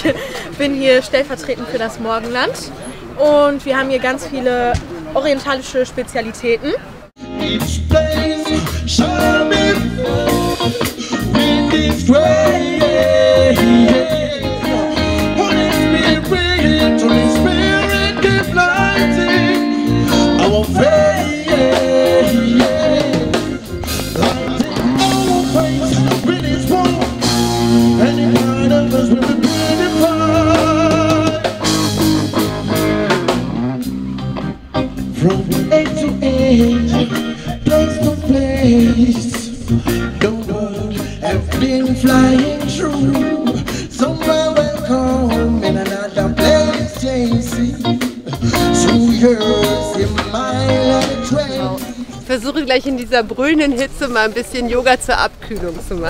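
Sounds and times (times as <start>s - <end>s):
person singing: 7.2s - 31.9s, 35.0s - 52.3s
drum kit: 7.2s - 52.3s
electric guitars: 7.2s - 54.3s.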